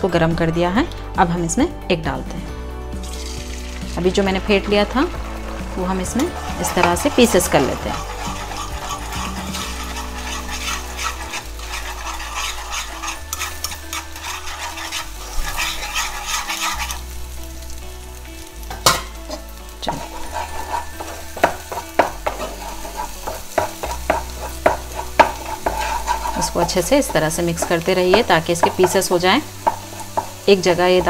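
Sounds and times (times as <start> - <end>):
egg sizzling in oil: 3.0 - 31.0
spatula scraping pan: 4.4 - 17.2, 19.3 - 31.0.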